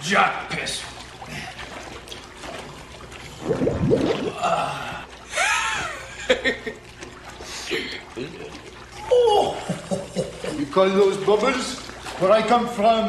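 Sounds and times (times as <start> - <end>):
underwater fart bubbling: 1.6 - 5.1
high rising and falling sound: 3.4 - 4.4.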